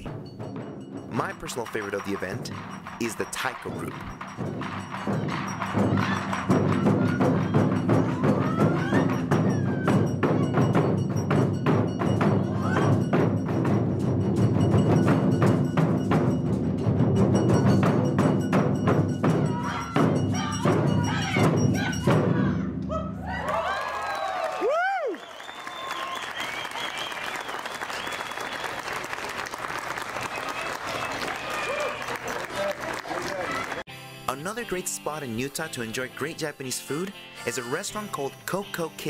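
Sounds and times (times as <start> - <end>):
large drums pounding: 0.0 - 22.7.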